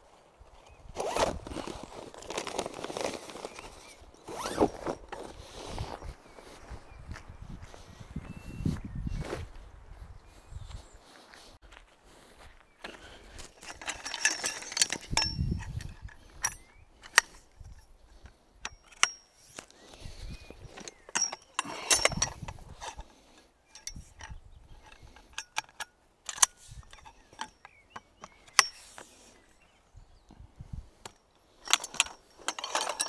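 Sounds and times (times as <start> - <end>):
metal rattling: 13.5 - 19.6, 20.7 - 29.2, 31.1 - 33.0
metal objects clicking and clattering: 13.6 - 17.8, 18.6 - 19.3, 20.7 - 29.1, 31.1 - 33.0.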